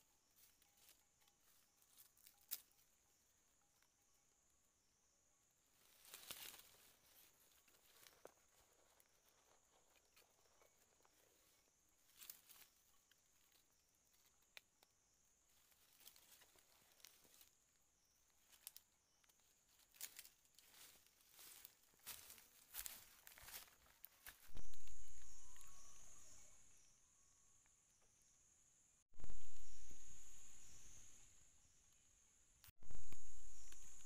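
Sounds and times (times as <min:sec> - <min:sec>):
rustles of dry leaf litter: 0:05.8 - 0:10.1, 0:19.7 - 0:26.4.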